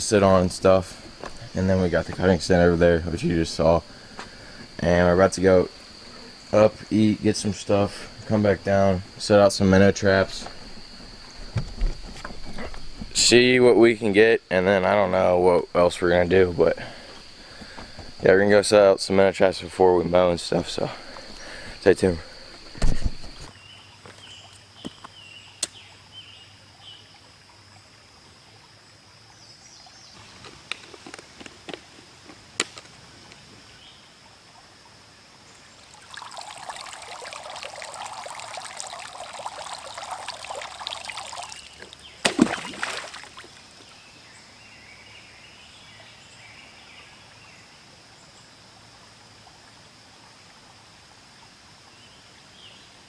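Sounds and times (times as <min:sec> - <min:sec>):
water rushing and gurgling: 0:00.0 - 0:24.5, 0:33.0 - 0:44.4
high insect drone: 0:00.0 - 0:53.0
short splash: 0:35.9 - 0:43.6.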